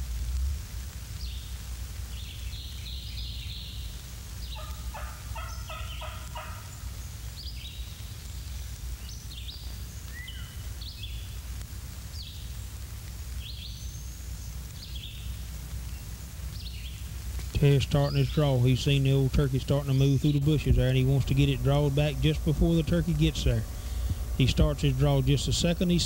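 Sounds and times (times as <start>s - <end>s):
songbirds chirping: 1.1s - 26.0s
steady low hum: 3.8s - 26.0s
turkey gobbling: 4.5s - 7.0s.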